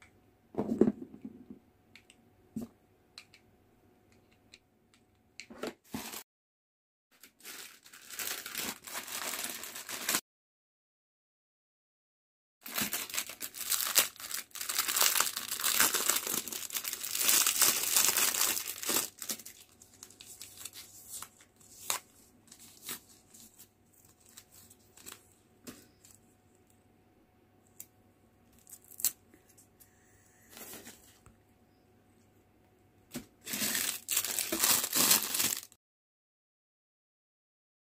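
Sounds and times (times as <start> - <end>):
plastic bags crinkling: 7.2 - 10.2, 12.6 - 26.2, 33.4 - 35.8.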